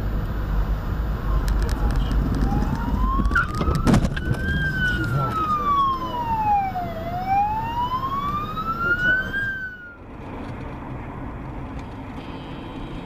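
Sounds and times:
car road and engine noise: 0:00.0 - 0:13.0
ambulance siren wailing: 0:01.8 - 0:10.0.

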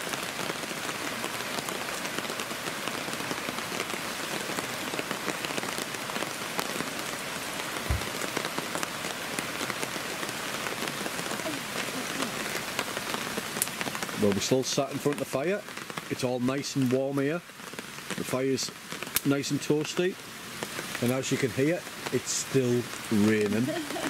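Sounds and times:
heavy rain on a tarp: 0:00.0 - 0:24.0
low thump: 0:07.8 - 0:08.3.

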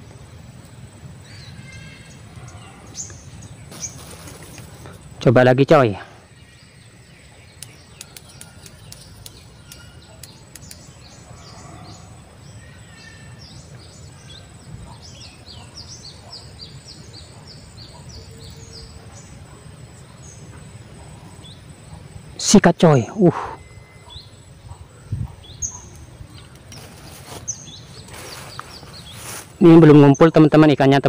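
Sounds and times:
outdoor background noise: 0:00.0 - 0:31.0
bird chirping: 0:01.0 - 0:31.0
faint clicks: 0:07.6 - 0:10.9.

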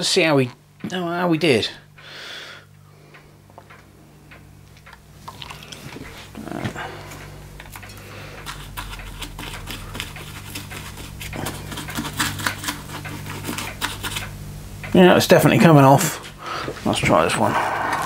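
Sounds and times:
brush scrubbing metal: 0:08.4 - 0:14.3.

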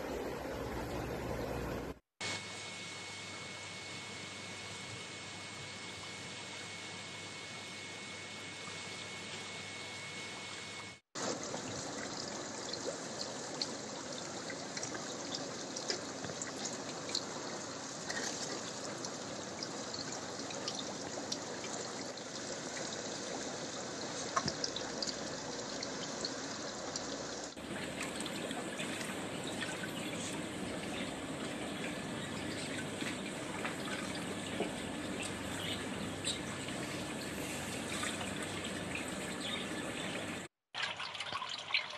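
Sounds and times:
water trickling and splashing: 0:11.2 - 0:41.9
water drips: 0:11.3 - 0:41.9.

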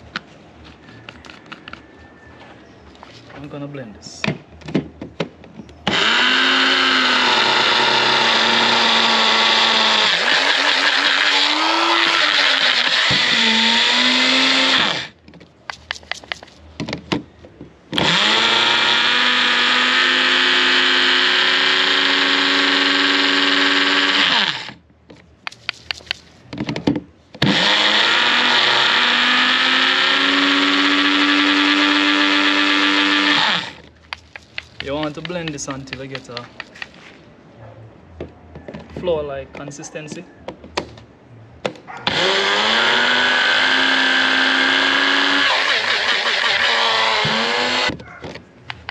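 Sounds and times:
blender motor grinding oats: 0:05.9 - 0:15.2, 0:18.0 - 0:24.8, 0:27.4 - 0:33.9, 0:42.1 - 0:47.9.

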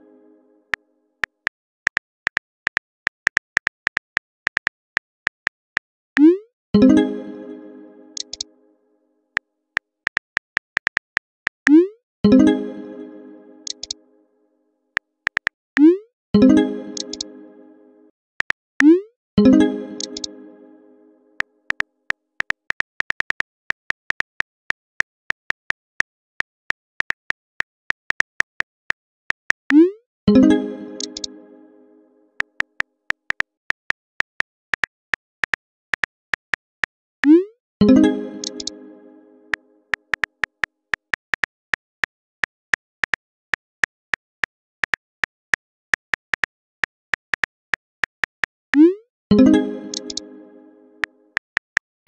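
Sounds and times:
phone keyboard typing clicks: 0:08.2 - 0:08.4, 0:13.6 - 0:14.0, 0:15.3 - 0:15.9, 0:17.0 - 0:17.2, 0:20.0 - 0:20.3, 0:31.0 - 0:31.3, 0:38.4 - 0:38.7, 0:49.9 - 0:50.2
phone keyboard tap clicks: 0:13.7 - 0:14.0, 0:49.9 - 0:50.2.

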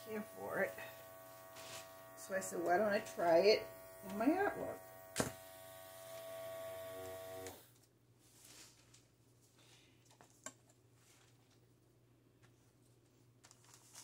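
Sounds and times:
airbrush compressor humming: 0:00.0 - 0:07.7.

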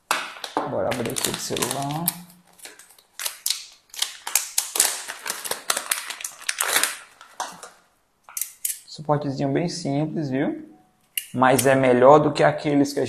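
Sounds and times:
plastic bag crinkling: 0:00.1 - 0:07.9.

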